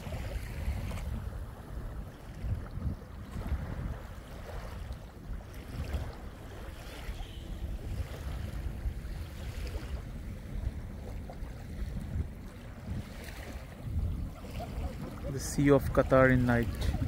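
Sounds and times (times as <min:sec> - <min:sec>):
small waves lapping on shore: 0:00.0 - 0:17.0
wind buffeting microphone: 0:00.0 - 0:17.0.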